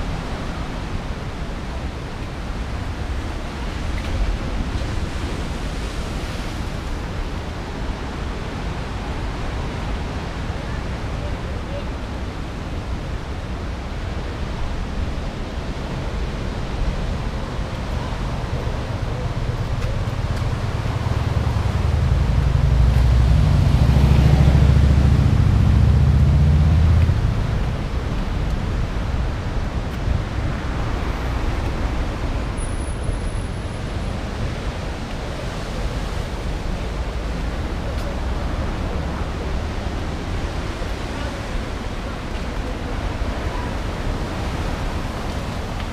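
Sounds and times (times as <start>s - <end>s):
road traffic: 0.0s - 45.9s
car passing: 18.0s - 28.1s.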